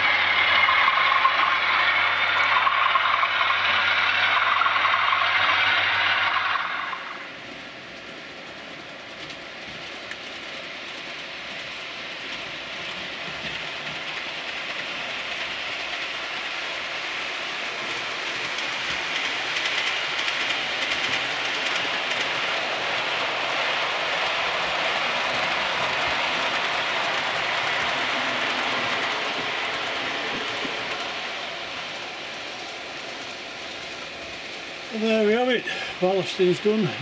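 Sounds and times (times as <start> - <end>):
model train wheels rumbling on rail: 0.0 - 37.0
clicking over rail joints: 17.8 - 31.3.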